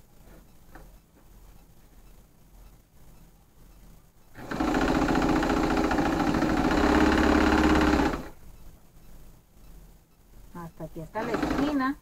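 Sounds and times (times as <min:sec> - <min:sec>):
sewing machine stitching: 0:04.4 - 0:08.3, 0:11.2 - 0:11.9.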